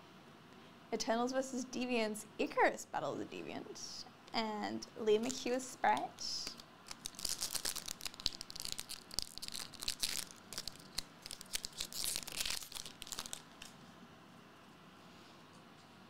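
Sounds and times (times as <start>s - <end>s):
foil wrapper tearing and crinkling: 6.4s - 13.7s.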